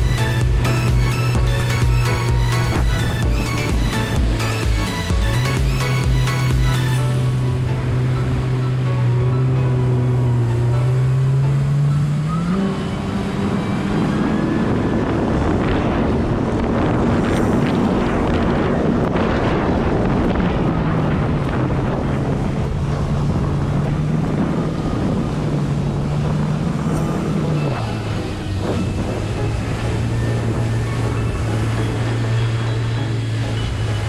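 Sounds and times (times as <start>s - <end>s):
jet ski engine running: 0.0s - 34.0s
wind on microphone: 0.0s - 34.0s.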